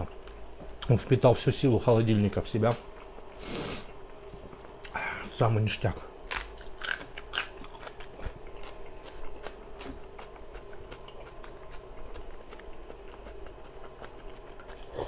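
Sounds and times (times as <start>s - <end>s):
low steady hum: 0.0s - 15.0s
chewing bread: 6.2s - 15.0s.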